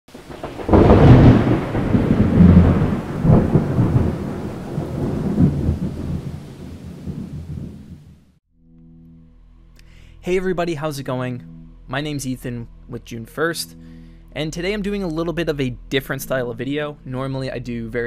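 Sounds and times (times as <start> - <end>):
thunder clap and rumble: 0.1 - 8.4.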